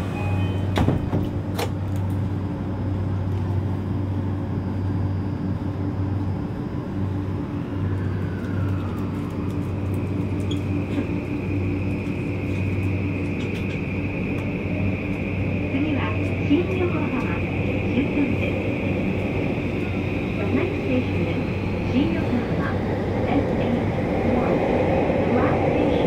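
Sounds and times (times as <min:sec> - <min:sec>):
train running noise with low hum: 0:00.0 - 0:26.0
traction motors whine rising: 0:07.5 - 0:25.9.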